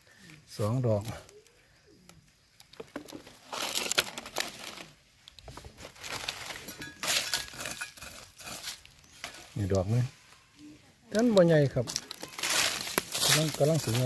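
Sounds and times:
leaf litter crunching and rustling: 2.9 - 10.4, 11.2 - 14.0.

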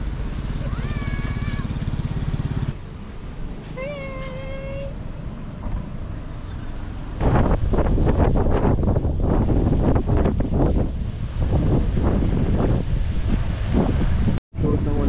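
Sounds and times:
car engine rumble: 0.0 - 15.0
wind buffeting microphone: 6.5 - 15.0.

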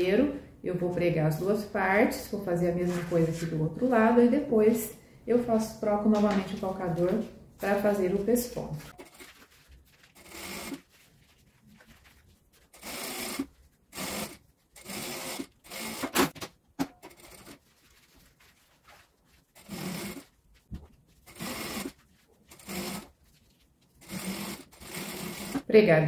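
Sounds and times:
sewing machine stitching: 10.2 - 10.8, 12.7 - 16.4, 17.0 - 17.6, 19.6 - 20.3, 21.2 - 23.1, 24.0 - 25.7.

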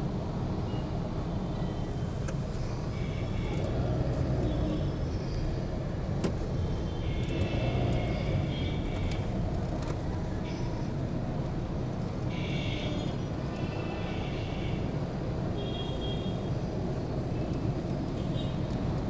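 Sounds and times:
road traffic rumble: 0.0 - 19.0
vehicle horns: 2.9 - 4.9, 6.7 - 9.4, 12.3 - 14.9, 15.6 - 16.5.

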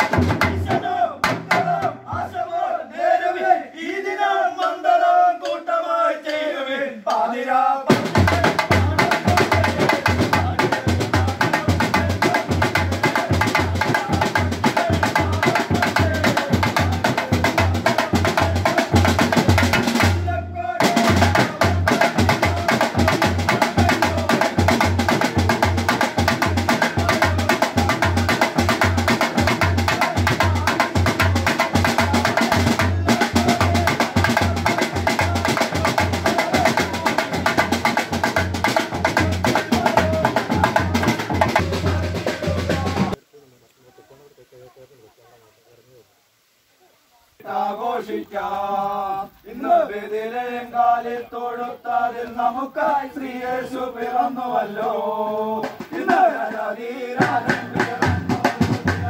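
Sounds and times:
drum band playing fast beat: 0.0 - 2.3, 7.9 - 43.2, 55.6 - 59.0
group voices chanting: 0.0 - 43.2, 47.4 - 59.0.

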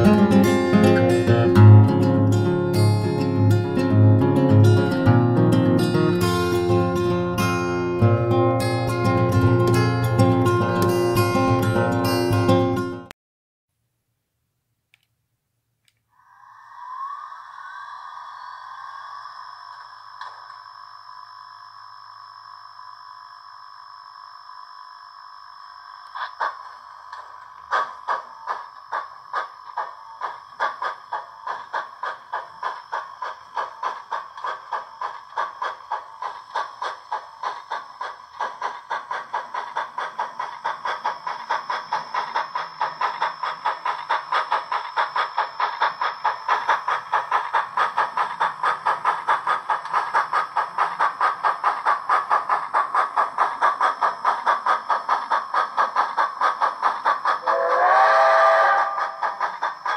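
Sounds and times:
model steam locomotive chuffs: 0.0 - 13.1, 16.2 - 24.6, 25.4 - 59.9
steam whistle: 57.4 - 59.9.

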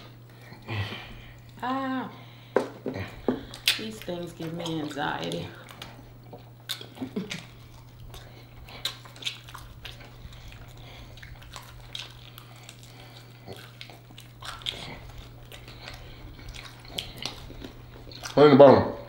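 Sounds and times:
steady low hum: 0.0 - 19.0
mouth smacks and clicks eating: 3.1 - 18.4.

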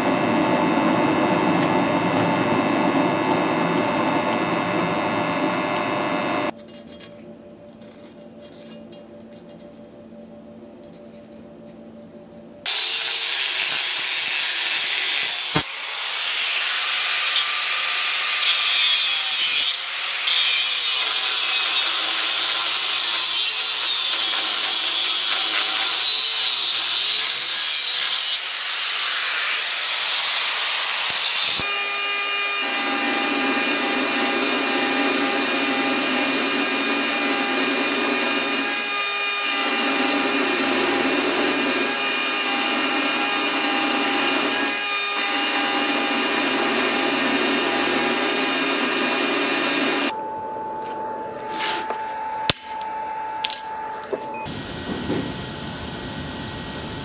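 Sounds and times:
belt grinder grinding steel: 0.0 - 6.6, 16.5 - 50.1
angle grinder grinding steel: 0.0 - 7.0, 12.7 - 50.2.

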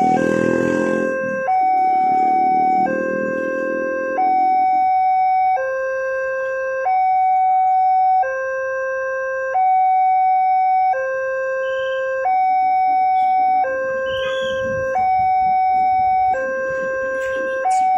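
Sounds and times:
level crossing alarm two-tone: 0.0 - 17.9.

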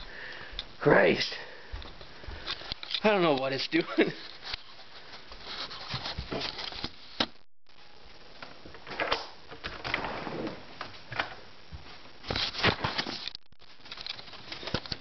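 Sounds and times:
rustles and knocks of handling: 1.7 - 7.4.

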